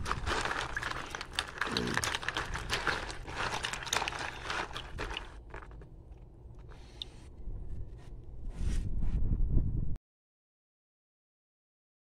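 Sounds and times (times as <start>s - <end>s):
crab shells clicking together: 0.0s - 5.8s
water sloshing in a basin: 0.0s - 7.3s.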